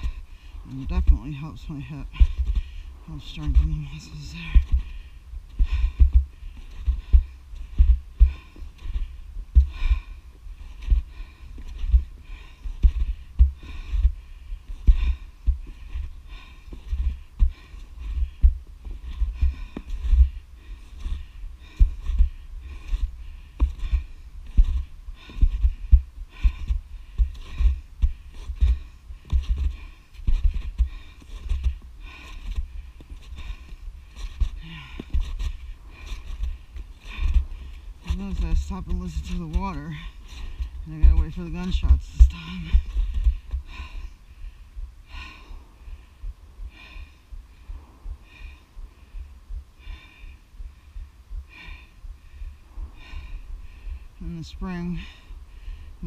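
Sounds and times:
snowshoe footsteps on snow: 0:00.0 - 0:14.1, 0:14.7 - 0:44.0
low wind rumble: 0:00.0 - 0:56.0
person breathing heavily: 0:00.0 - 0:56.0.

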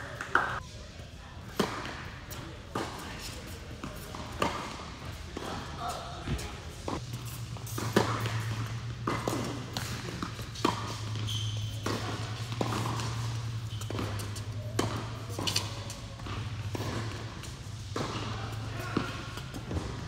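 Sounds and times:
low hum of hall: 0:00.0 - 0:20.0
ball bouncing on court: 0:06.2 - 0:20.0
tennis ball hitting rackets: 0:06.2 - 0:20.0.

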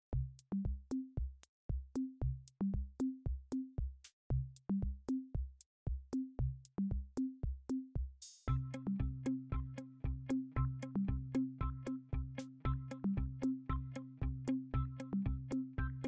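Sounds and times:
electronic music with drum-machine beat: 0:06.2 - 0:16.0.

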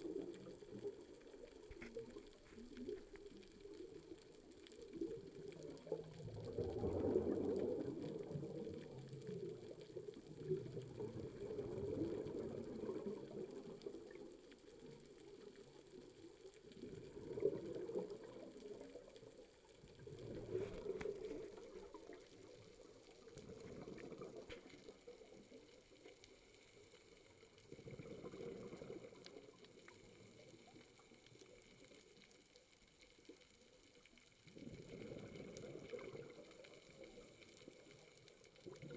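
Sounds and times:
underwater breath bubbles: 0:04.9 - 0:14.3, 0:16.7 - 0:19.1, 0:19.8 - 0:25.5, 0:27.6 - 0:31.6, 0:34.4 - 0:38.0.

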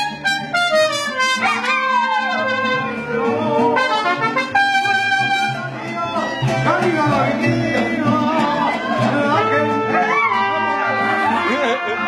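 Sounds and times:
trumpets: 0:00.0 - 0:06.6, 0:09.3 - 0:12.0
mariachi band playing: 0:00.0 - 0:12.0
dog howling: 0:01.4 - 0:04.0, 0:09.8 - 0:11.7.

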